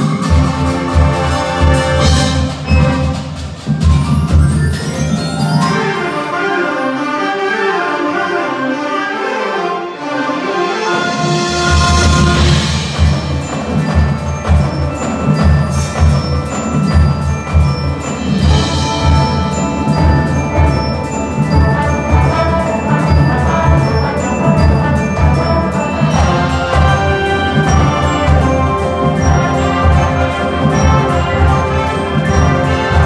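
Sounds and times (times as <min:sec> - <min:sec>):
ringing mallet percussion: 0:00.0 - 0:07.0, 0:11.3 - 0:33.0
marching band playing: 0:00.0 - 0:33.0.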